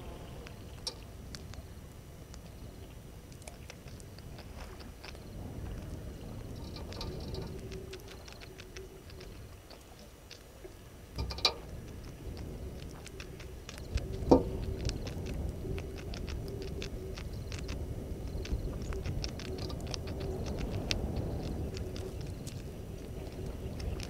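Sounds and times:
low rumble: 0:00.0 - 0:03.3, 0:10.8 - 0:24.0.

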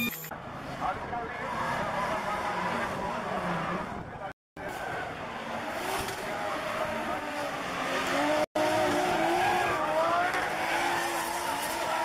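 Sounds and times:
car engines revving: 0:00.3 - 0:12.0.

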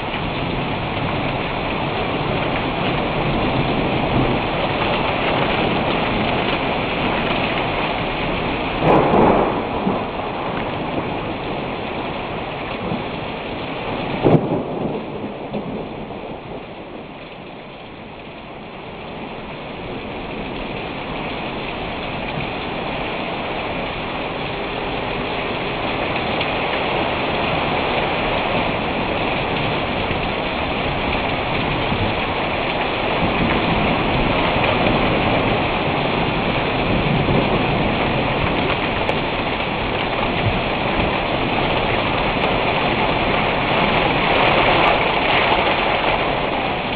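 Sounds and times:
heavy rain hissing: 0:00.0 - 0:46.9.

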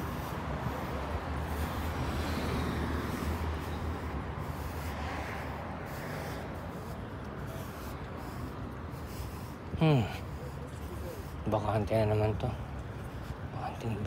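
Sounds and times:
street noise rumble and hiss: 0:00.0 - 0:14.0.

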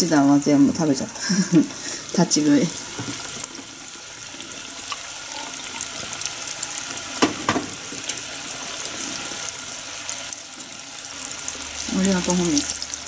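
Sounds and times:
oil sizzling and popping: 0:00.0 - 0:13.0.

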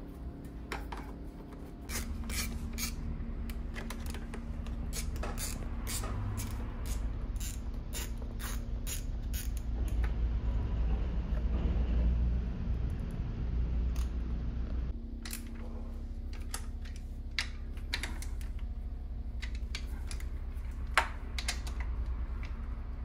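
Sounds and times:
low steady hum: 0:00.0 - 0:23.0
ratchet wrench clicking: 0:01.9 - 0:03.0, 0:04.8 - 0:09.7.

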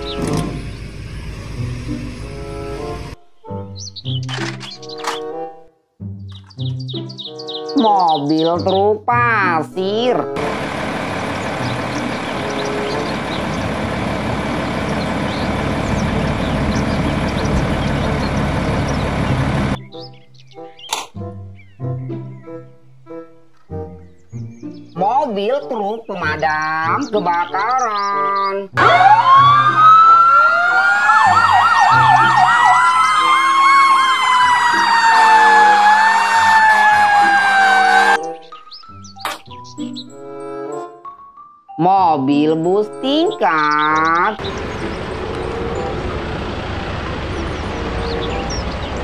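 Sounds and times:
diesel truck engine running: 0:00.0 - 0:03.2, 0:10.2 - 0:19.8, 0:28.8 - 0:38.2, 0:43.7 - 0:49.0
siren wail: 0:10.4 - 0:19.8, 0:28.8 - 0:38.2
fast siren yelp: 0:28.8 - 0:38.2.

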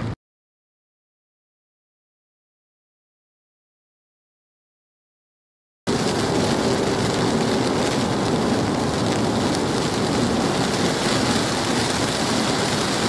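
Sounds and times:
heavy rain on a car: 0:05.9 - 0:13.0.

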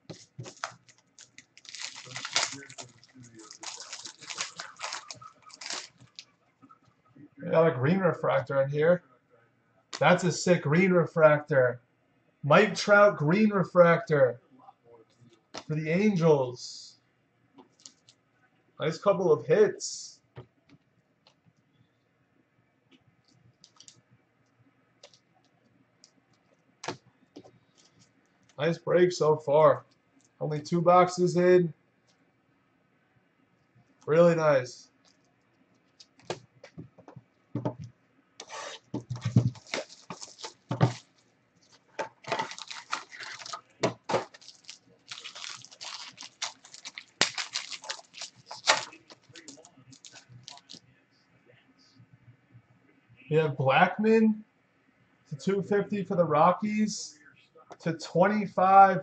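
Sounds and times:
foil wrapper crinkling and tearing: 0:00.1 - 0:06.3, 0:17.7 - 0:18.2, 0:39.1 - 0:50.8.

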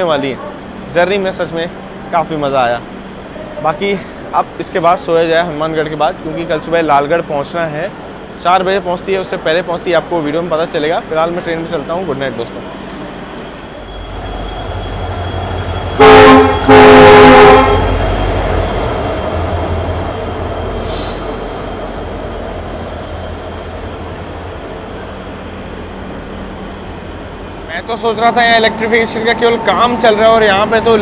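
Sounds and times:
locomotive engine rumble: 0:11.5 - 0:31.0
locomotive horn blasts: 0:15.9 - 0:18.0
brief hiss: 0:20.8 - 0:21.6.

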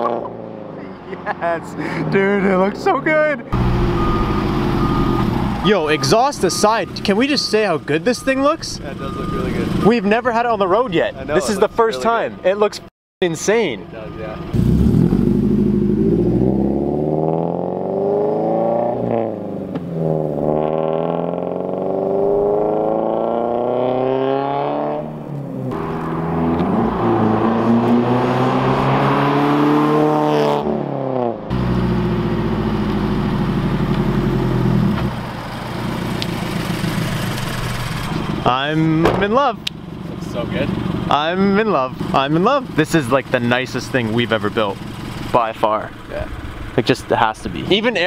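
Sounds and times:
car accelerating past: 0:14.5 - 0:35.0.

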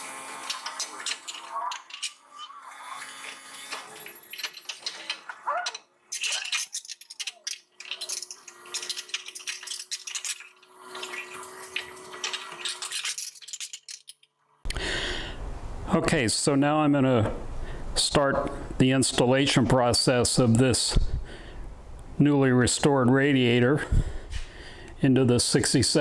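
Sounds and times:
sheet metal rattling and scraping: 0:03.8 - 0:14.2.

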